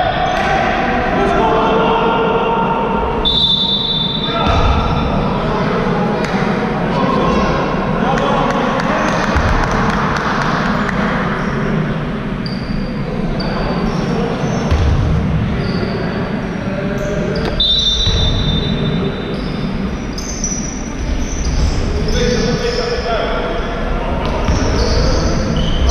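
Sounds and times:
sneakers squeaking: 12.3 - 25.9
basketball bouncing on court floor: 14.7 - 15.2.

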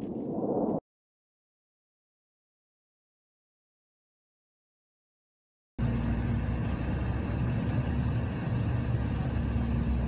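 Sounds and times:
airliner engines droning: 5.8 - 10.0.

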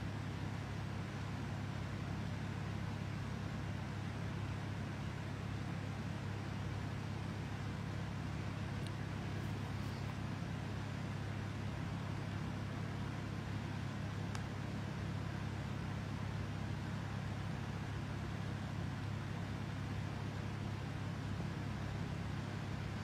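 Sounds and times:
steady low hum: 6.6 - 23.0
faint click: 8.8 - 9.0, 14.3 - 14.5.

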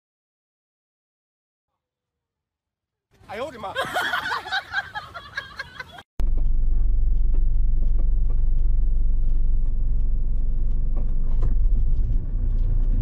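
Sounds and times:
road noise: 4.4 - 13.0
car engine rumble: 6.2 - 13.0.

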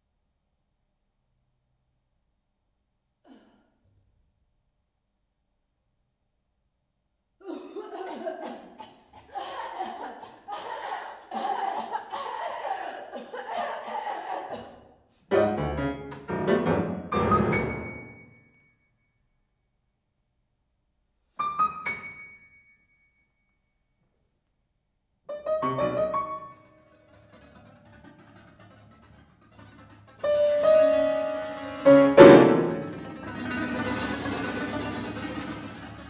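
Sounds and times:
grand piano chord clusters: 15.3 - 18.3, 30.3 - 35.5
piano strings struck with mallet: 29.8 - 35.8.

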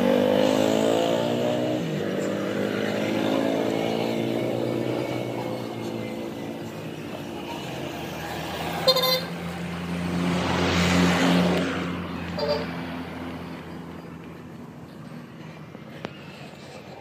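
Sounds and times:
steady engine hum: 0.0 - 17.0
vehicle passing close by: 0.0 - 17.0
short horn toots: 8.8 - 9.4.

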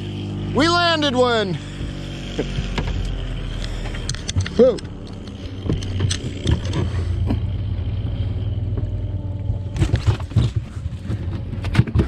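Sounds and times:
boat motor humming: 0.0 - 12.0
knocks and clattering on deck: 9.7 - 12.0.

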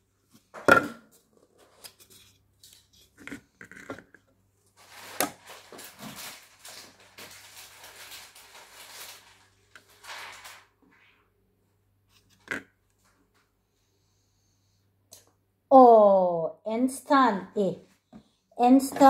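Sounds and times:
scratchy plastic rustling: 4.7 - 11.2.

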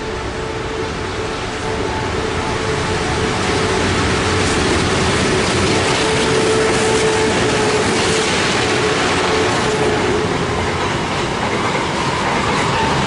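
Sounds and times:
diesel locomotive engine drone: 0.0 - 13.0
wheels clicking on rail joints: 1.4 - 13.0
freight wagons rolling: 2.6 - 13.0.

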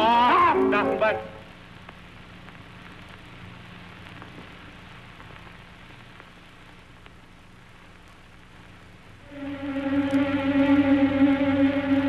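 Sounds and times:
film soundtrack hiss and crackle: 0.0 - 12.0
steady low hum: 9.1 - 12.0.

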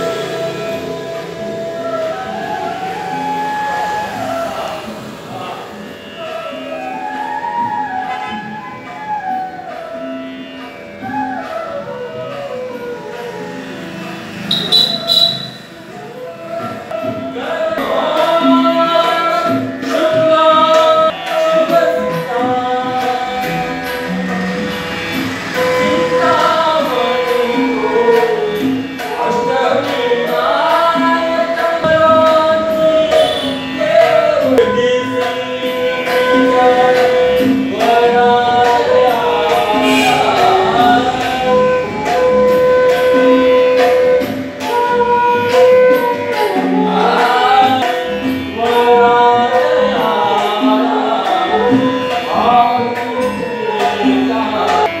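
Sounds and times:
bamboo flute: 0.0 - 5.6, 6.2 - 18.6, 39.4 - 47.9
man singing ornamented melody: 14.2 - 24.7, 25.3 - 44.8, 45.4 - 55.0.

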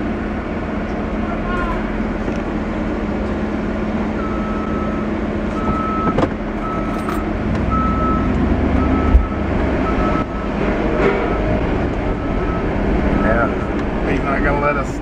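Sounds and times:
engine rumble: 0.0 - 15.0
forklift backup alarm beeping: 4.0 - 13.8.

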